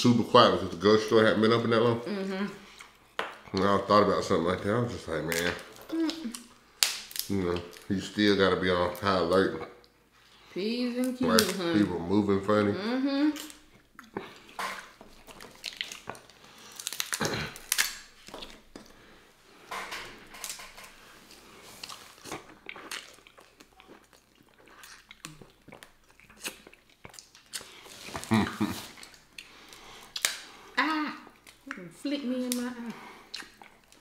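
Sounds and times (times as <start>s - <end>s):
crab shells cracking: 5.2s - 7.9s, 14.5s - 18.8s, 29.0s - 30.5s
close-up chewing: 13.4s - 19.1s, 21.3s - 30.5s, 33.0s - 34.0s.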